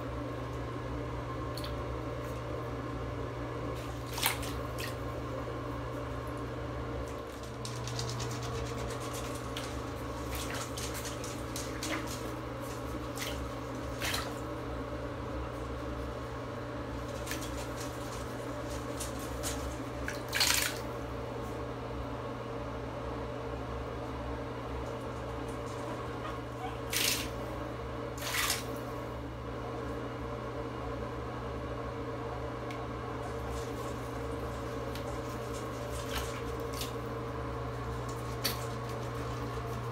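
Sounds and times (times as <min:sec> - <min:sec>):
steady low hum: 0:00.0 - 0:39.9
water splashing in bathtub: 0:03.7 - 0:05.4, 0:06.0 - 0:14.7, 0:15.6 - 0:21.1, 0:24.9 - 0:29.0, 0:32.7 - 0:39.9.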